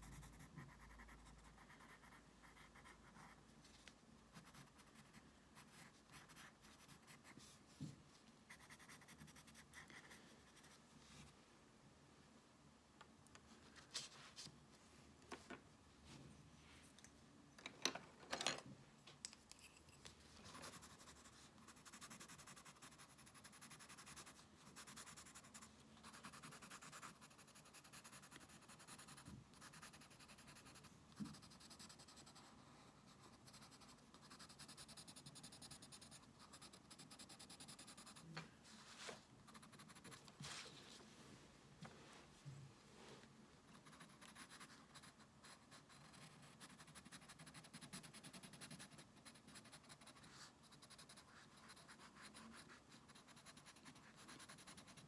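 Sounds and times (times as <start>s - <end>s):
pencil scratching on paper: 0.0s - 7.9s, 8.5s - 11.3s, 20.4s - 40.6s, 43.7s - 55.0s.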